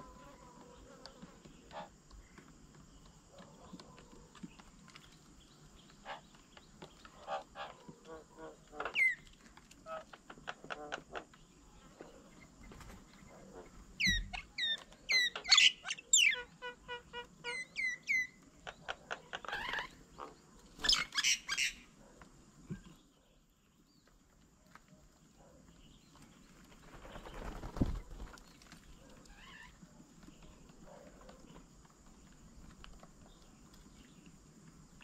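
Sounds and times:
birds chattering: 0:00.0 - 0:09.3, 0:09.9 - 0:21.9
birds whistling: 0:14.0 - 0:16.5.

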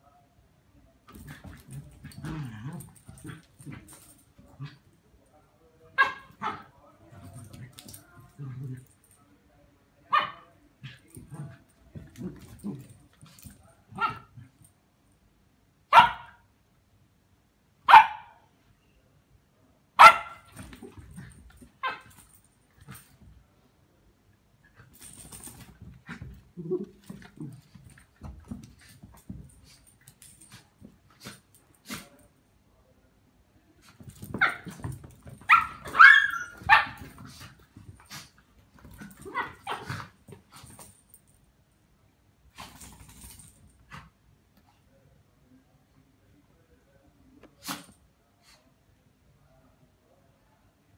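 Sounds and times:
dog barking: 0:15.9 - 0:16.4, 0:17.9 - 0:18.4, 0:20.0 - 0:20.5.

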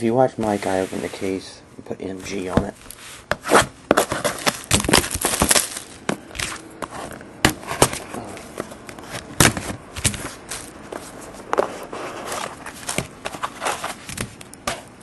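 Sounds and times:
scissors cutting shrink wrap: 0:04.0 - 0:06.6
plastic wrap crinkling and tearing: 0:04.2 - 0:06.7.

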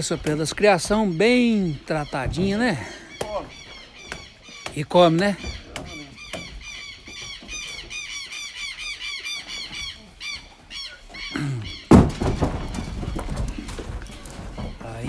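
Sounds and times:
squash thumping on ground: 0:11.9 - 0:15.0.

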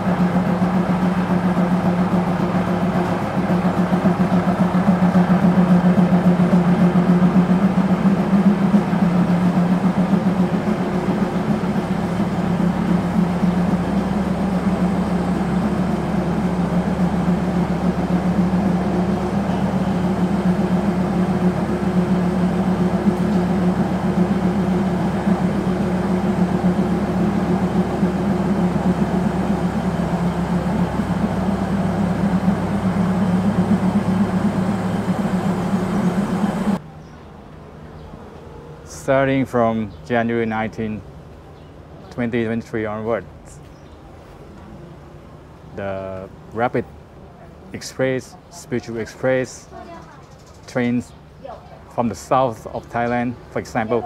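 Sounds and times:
diesel train engine idling: 0:00.0 - 0:54.0.

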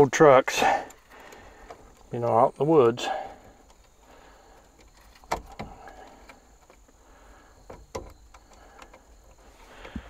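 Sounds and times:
faint high insect buzz: 0:01.0 - 0:10.0
sharp metallic knocks and clicks: 0:07.6 - 0:09.0.

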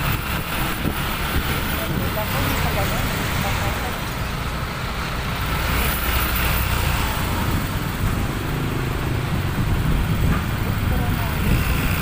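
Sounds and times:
motorcycle engine rumbling: 0:00.0 - 0:12.0
road and traffic noise: 0:00.0 - 0:12.0.

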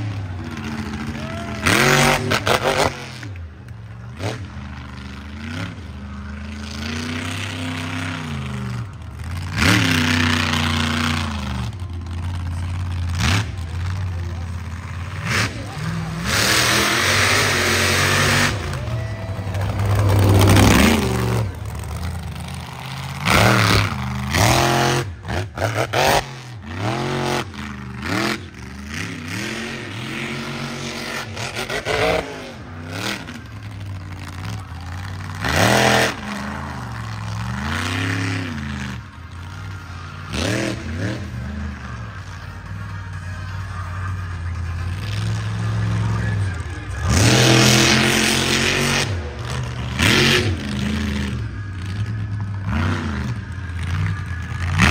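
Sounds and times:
truck engine revving: 0:00.0 - 0:54.9
truck engine idling: 0:03.1 - 0:25.7, 0:32.4 - 0:50.0.

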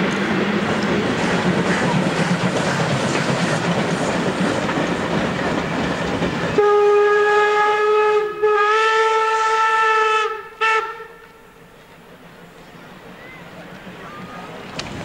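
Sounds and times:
train wheels clattering: 0:00.0 - 0:06.6, 0:12.3 - 0:15.0
steam locomotive whistle blasts: 0:06.6 - 0:11.6.

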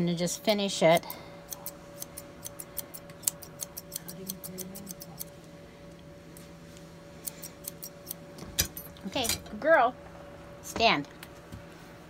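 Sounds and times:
faint steady hum: 0:00.0 - 0:12.0
shears snipping hair: 0:00.4 - 0:05.5, 0:06.3 - 0:09.2.

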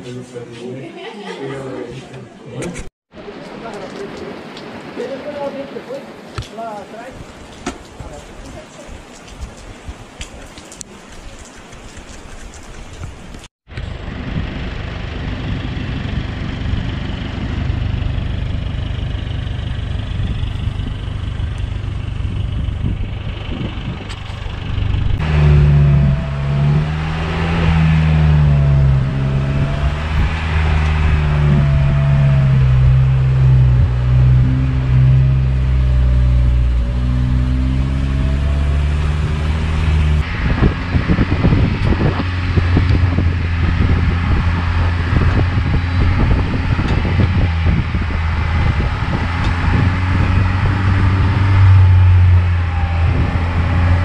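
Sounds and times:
engine revving under load: 0:13.7 - 0:54.0
low rumbling ride noise: 0:13.7 - 0:54.0.

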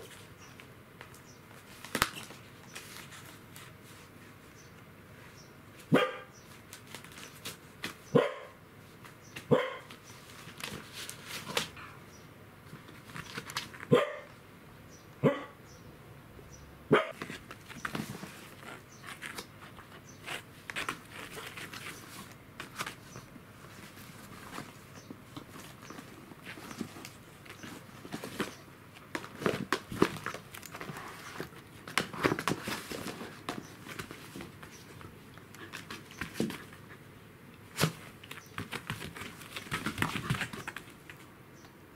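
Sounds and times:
dog barking: 0:05.9 - 0:06.4, 0:08.1 - 0:08.6, 0:09.5 - 0:09.9, 0:13.9 - 0:14.3, 0:15.2 - 0:15.6, 0:16.9 - 0:17.2
cardboard box crinkling: 0:25.5 - 0:34.6.

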